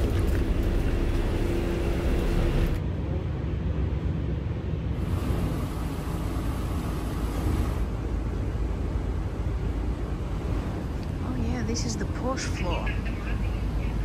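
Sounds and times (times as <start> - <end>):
ship engine rumble: 0.0 - 14.0.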